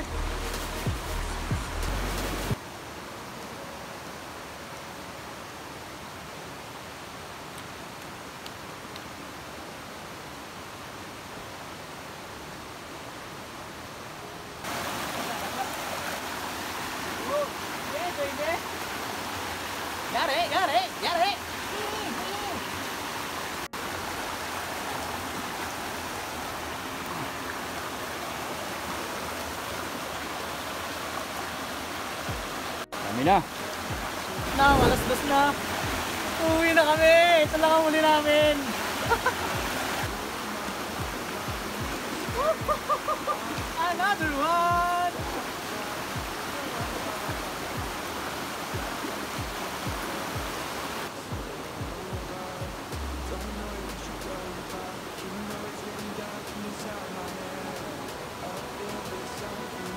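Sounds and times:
music with deep kick drums: 0.0s - 2.6s, 46.2s - 48.0s, 51.3s - 54.4s
stream running over stones: 0.0s - 59.9s.

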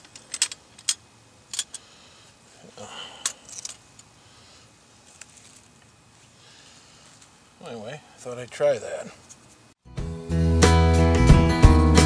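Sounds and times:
short rustle: 4.9s - 7.4s.

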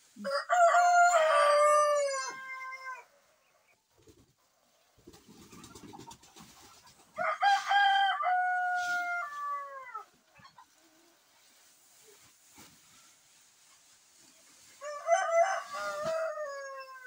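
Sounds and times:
rooster crowing: 0.2s - 3.1s, 7.2s - 10.1s, 14.8s - 17.0s.

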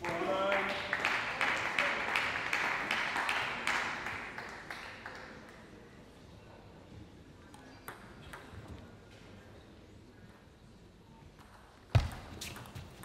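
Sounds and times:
table tennis ball bouncing: 7.8s - 8.9s.

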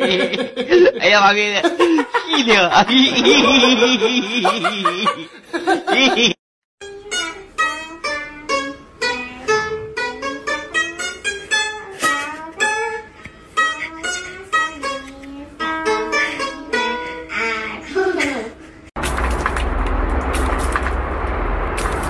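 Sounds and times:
plucked lute melody: 6.8s - 17.7s.

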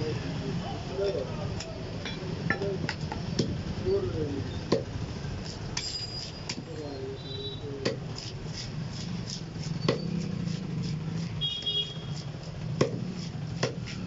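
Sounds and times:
cleaver chopping on wooden block: 4.7s - 4.9s, 7.8s - 8.3s, 9.2s - 14.0s.

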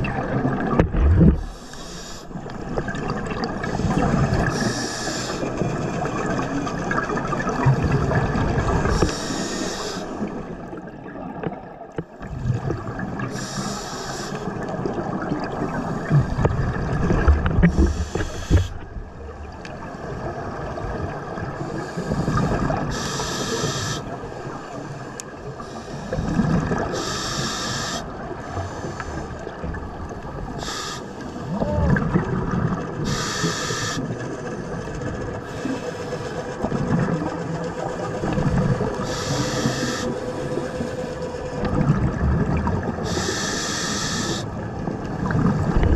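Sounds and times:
regulator inhalation hiss: 1.4s - 2.4s, 4.5s - 5.5s, 9.0s - 10.2s, 13.3s - 14.5s, 17.8s - 18.8s, 21.8s - 24.1s, 26.9s - 28.1s, 30.6s - 31.5s, 33.0s - 34.1s, 39.0s - 41.0s, 43.0s - 44.5s.

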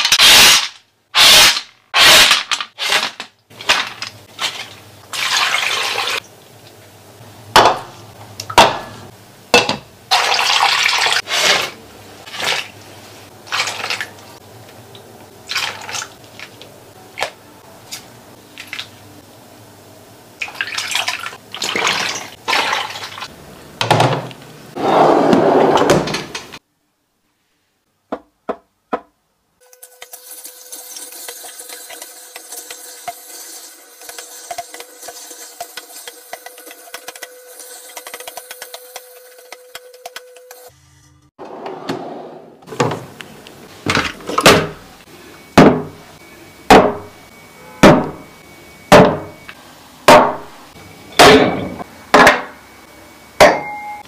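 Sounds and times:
liquid pouring and splashing: 4.3s - 6.2s, 10.1s - 11.6s, 20.4s - 23.3s.

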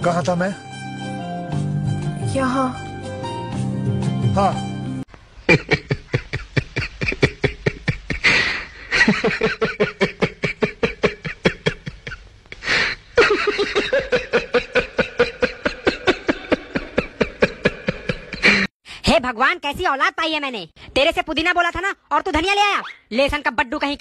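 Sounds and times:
man laughing hard: 5.5s - 12.2s, 13.2s - 18.7s.

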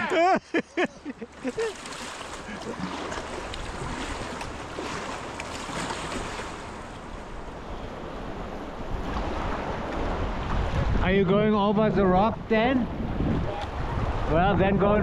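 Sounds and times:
river water rushing: 1.0s - 11.0s
wind rumble on microphone: 7.0s - 15.0s.

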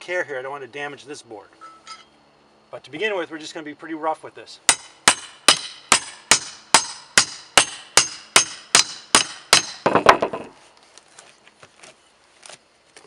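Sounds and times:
hammer striking steel bar: 4.7s - 10.3s
board breaking crunch: 9.6s - 11.3s.

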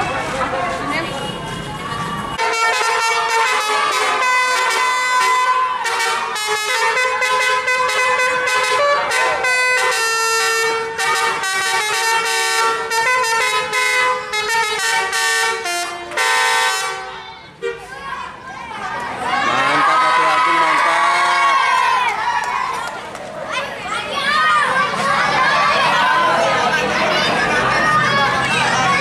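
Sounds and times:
multi-tone bus air horn melody: 2.4s - 17.9s.

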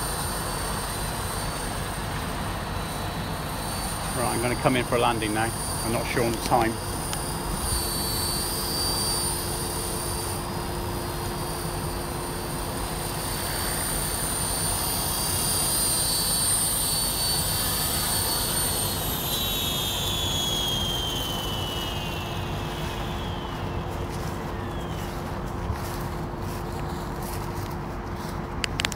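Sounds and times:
rotor noise: 0.0s - 28.9s
toy helicopter motor whine: 0.0s - 28.9s.

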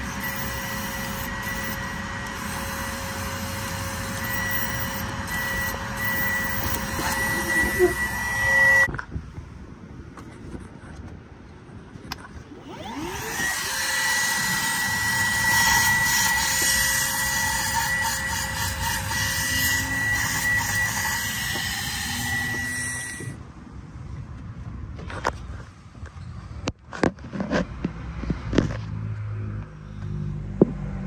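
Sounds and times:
cordless vacuum whining: 0.0s - 8.9s, 12.5s - 23.4s.

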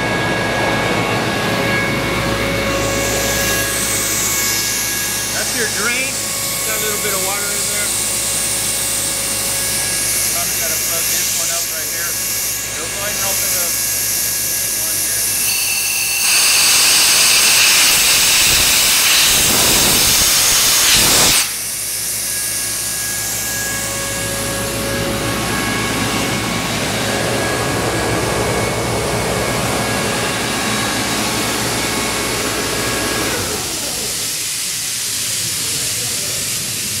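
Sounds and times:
compressor running: 0.0s - 37.0s
compressed air hissing: 16.0s - 24.0s.

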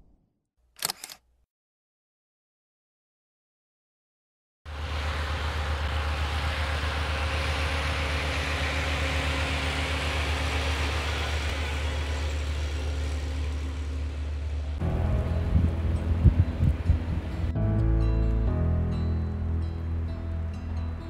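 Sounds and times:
wheel loader diesel engine running: 4.7s - 21.0s.

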